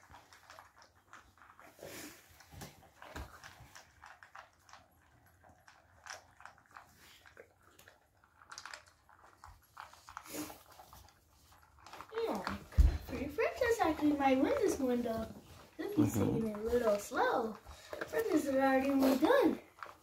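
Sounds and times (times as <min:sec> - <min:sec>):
teeth clicking on metal bowls: 0:00.0 - 0:14.9
dogs chewing: 0:00.0 - 0:20.0.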